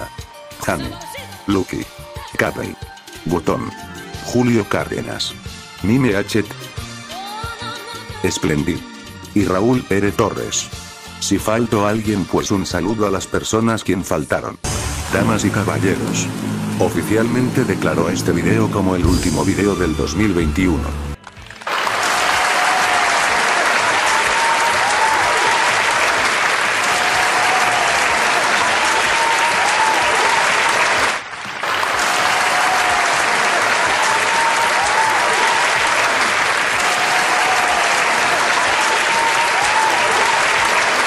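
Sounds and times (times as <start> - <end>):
audience applauding: 21.2 - 41.0.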